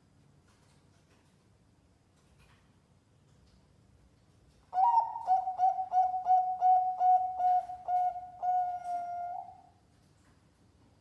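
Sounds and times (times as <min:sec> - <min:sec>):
dove cooing: 0:04.8 - 0:09.7.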